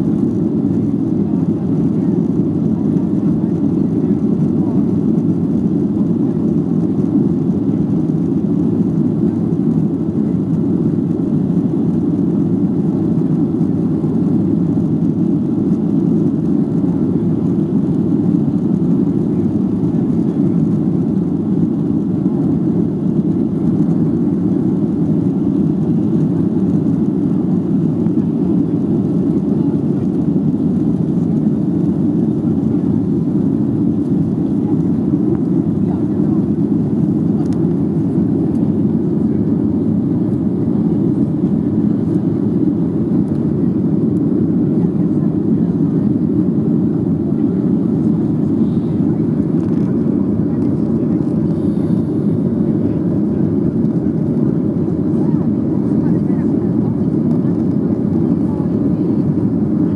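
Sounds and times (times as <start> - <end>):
jet engines at takeoff thrust: 0.0 - 59.9.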